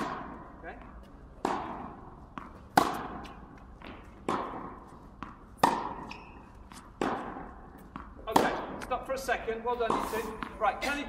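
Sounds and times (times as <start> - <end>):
rackets hitting tennis ball: 0.0 - 11.0
tennis ball bouncing: 0.0 - 11.0.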